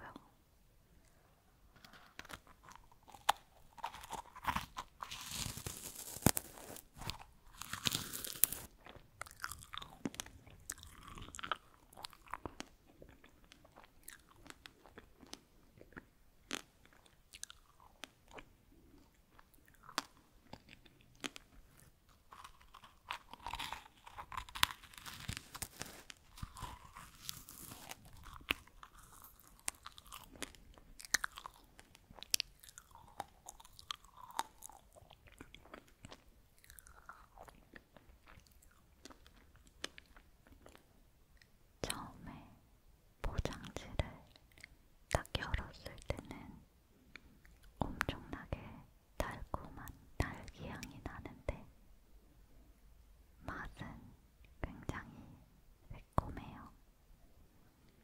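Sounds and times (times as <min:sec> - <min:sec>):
crunchy fruit being chewed: 0:01.7 - 0:42.4.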